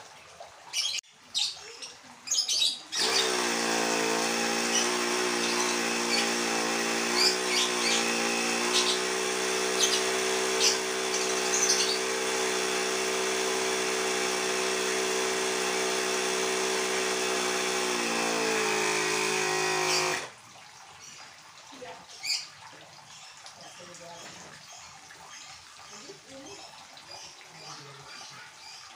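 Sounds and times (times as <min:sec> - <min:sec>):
compressor motor humming: 0:03.0 - 0:20.3.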